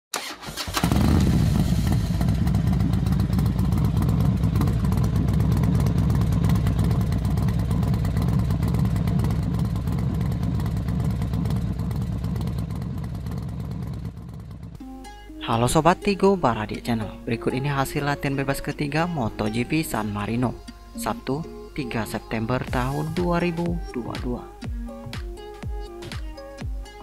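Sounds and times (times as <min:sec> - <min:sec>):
racing motorcycle engines: 0:00.8 - 0:14.8.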